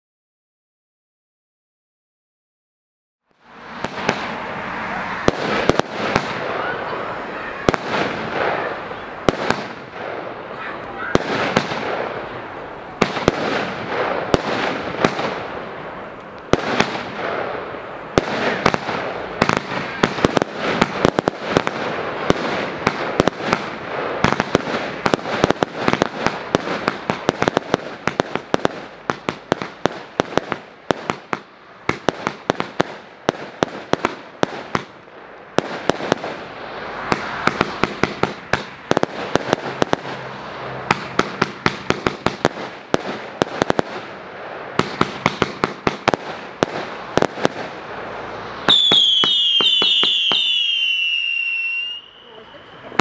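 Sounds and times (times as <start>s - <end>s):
firework aerial bursts: 3.3s - 53.0s
firework hiss and crackle: 3.3s - 53.0s.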